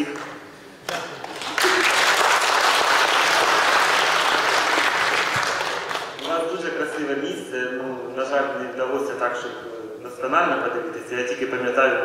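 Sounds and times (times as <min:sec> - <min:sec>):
audience applauding: 0:01.2 - 0:06.3.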